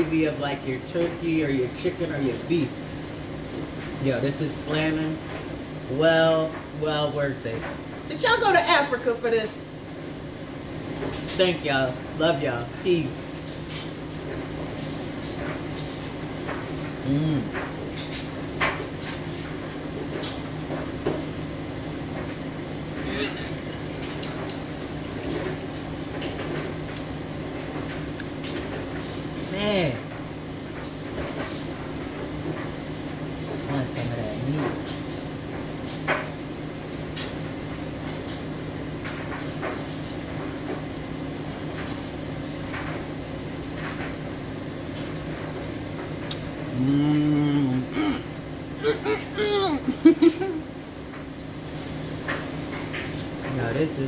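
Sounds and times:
steady low hum: 0:00.0 - 0:54.0
wet chewing and squeezing smacks: 0:23.5 - 0:25.5.

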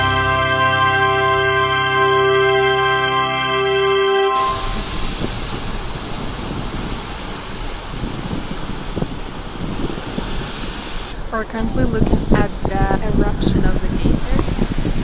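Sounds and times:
geyser steam and water rushing: 0:04.6 - 0:15.0.

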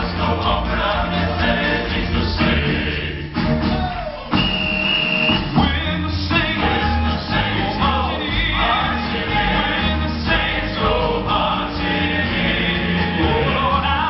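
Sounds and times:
men singing in harmony: 0:00.0 - 0:03.3, 0:05.5 - 0:14.0
bass line: 0:00.0 - 0:14.0
keyboard: 0:05.3 - 0:14.0.

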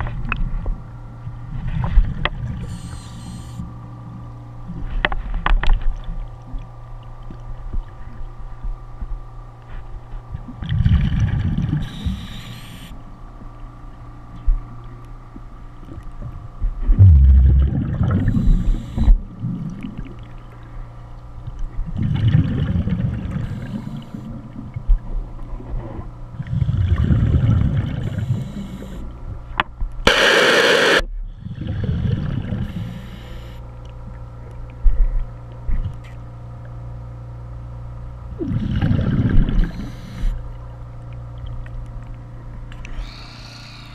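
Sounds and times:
steady hum: 0:00.0 - 0:43.9
diver breathing through regulator: 0:02.6 - 0:03.7, 0:11.8 - 0:13.0, 0:18.2 - 0:19.2, 0:23.3 - 0:24.3, 0:28.0 - 0:29.1, 0:32.6 - 0:33.7, 0:38.4 - 0:40.4, 0:42.9 - 0:43.9
bubbles rumbling: 0:10.5 - 0:11.8, 0:16.7 - 0:20.4, 0:21.8 - 0:23.5, 0:26.4 - 0:28.2, 0:31.4 - 0:32.7, 0:38.3 - 0:39.8.

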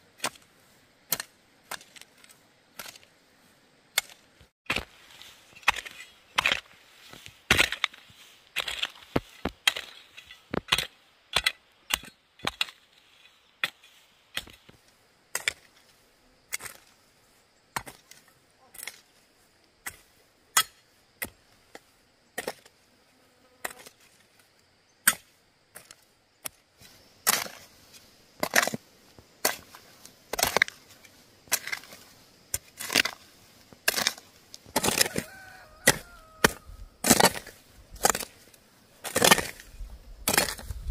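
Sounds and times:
hand hoe chopping stony soil: 0:00.0 - 0:03.2, 0:03.9 - 0:13.0, 0:13.6 - 0:15.9, 0:16.5 - 0:17.0, 0:17.8 - 0:19.1, 0:19.8 - 0:22.8, 0:23.6 - 0:24.4, 0:25.0 - 0:40.9
loose earth scattering: 0:03.9 - 0:13.0, 0:23.6 - 0:40.9.

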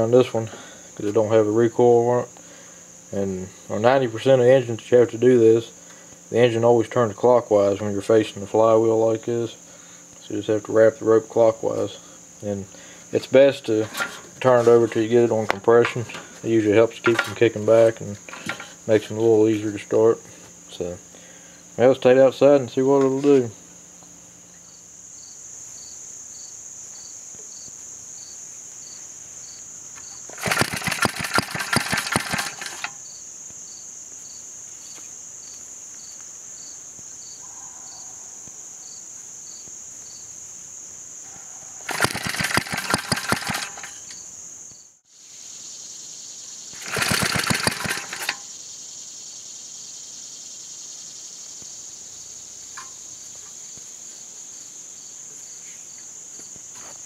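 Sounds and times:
crickets chirping: 0:00.0 - 0:57.0
starter rope pull: 0:18.3 - 0:18.8, 0:30.3 - 0:33.0, 0:41.9 - 0:44.2, 0:46.8 - 0:48.5
small engine popping: 0:30.2 - 0:33.0, 0:41.9 - 0:44.2, 0:46.7 - 0:48.5.

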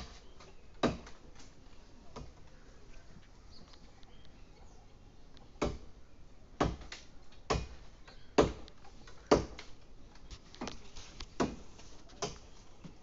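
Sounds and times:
blade chopping wood: 0:06.6 - 0:07.8, 0:11.4 - 0:11.6.

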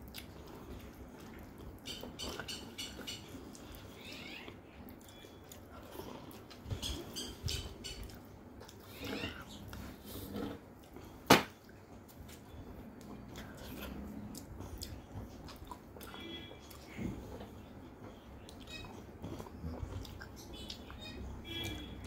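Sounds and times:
person chewing food: 0:00.0 - 0:22.0.

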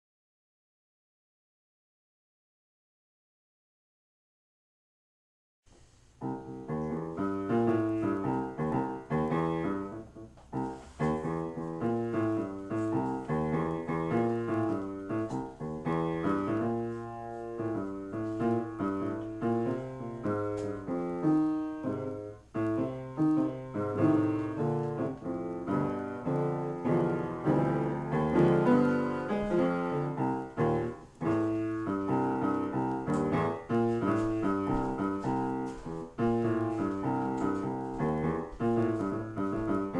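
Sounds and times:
piano improvisation: 0:06.1 - 0:39.9.

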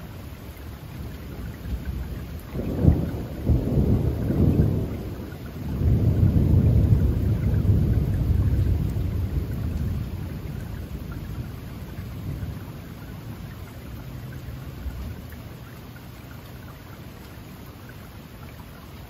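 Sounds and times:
steady rain: 0:00.0 - 0:19.0
rolling thunder: 0:01.8 - 0:12.7.

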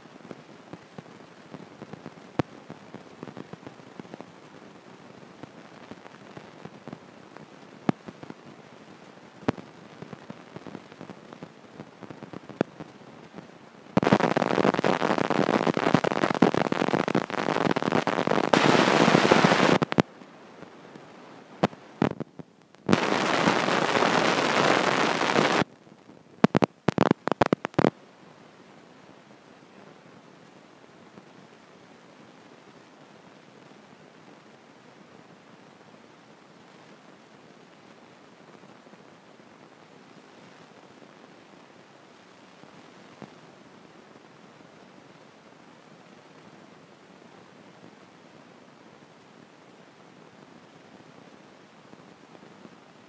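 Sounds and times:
microphone handling crackle: 0:09.4 - 0:20.8, 0:21.6 - 0:25.7, 0:26.4 - 0:28.0.

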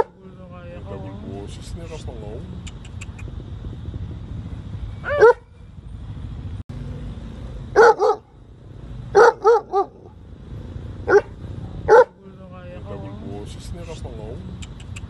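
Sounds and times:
dog barking: 0:05.1 - 0:05.5, 0:07.7 - 0:08.3, 0:09.1 - 0:10.1, 0:11.0 - 0:12.2.

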